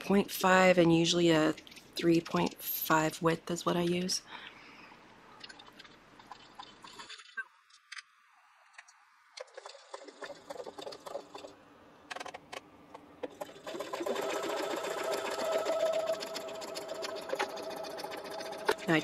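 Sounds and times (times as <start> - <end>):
sewing machine running: 13.2 - 19.0.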